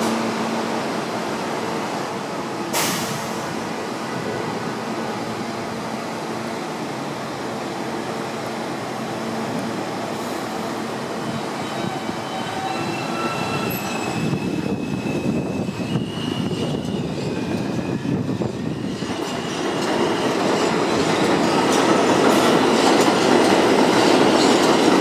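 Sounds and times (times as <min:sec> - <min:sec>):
train wheels rumbling on rails: 0:08.0 - 0:25.0
high squealing of wheels: 0:11.2 - 0:21.8.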